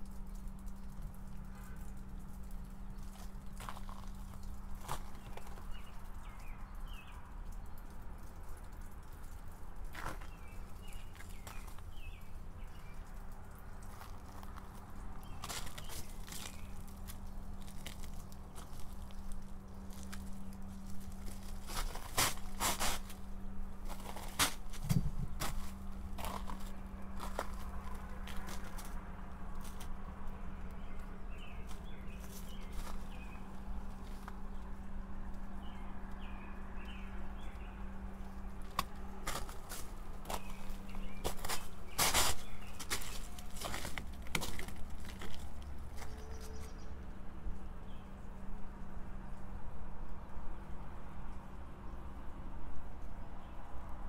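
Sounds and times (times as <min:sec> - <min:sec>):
footsteps crunching on hailstones: 0:02.2 - 0:06.6, 0:09.8 - 0:35.4, 0:38.2 - 0:46.6
steady low hum: 0:09.6 - 0:50.1.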